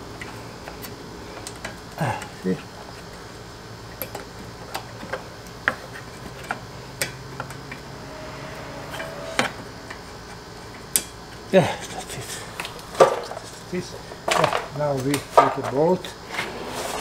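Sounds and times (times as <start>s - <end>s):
steady low hum: 4.4s - 10.8s.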